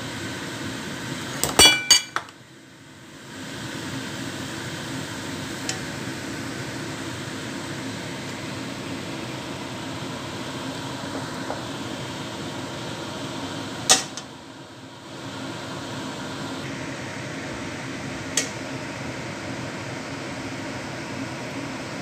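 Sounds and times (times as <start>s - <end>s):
steady fan-like whir: 0.0s - 22.0s
tongs clicking against wok: 18.4s - 18.6s.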